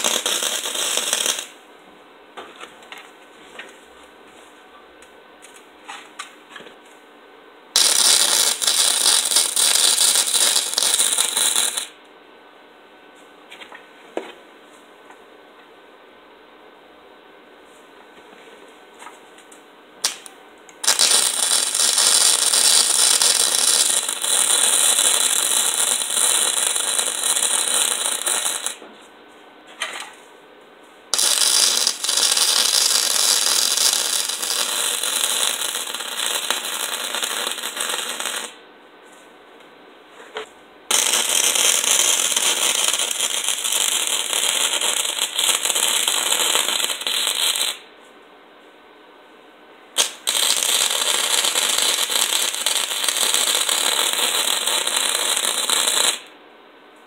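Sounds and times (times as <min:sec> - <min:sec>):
electric arc welding crackling: 0:00.0 - 0:01.6, 0:07.8 - 0:12.0, 0:20.0 - 0:28.8, 0:31.1 - 0:38.6, 0:40.9 - 0:47.8, 0:50.0 - 0:56.3.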